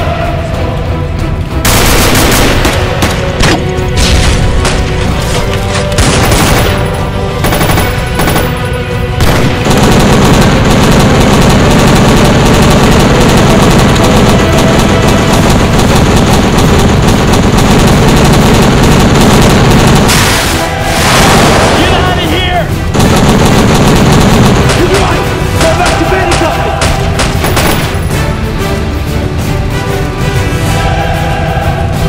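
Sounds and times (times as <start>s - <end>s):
background music: 0.0s - 32.0s
automatic gunfire: 1.7s - 3.3s, 6.0s - 20.2s, 22.9s - 28.1s.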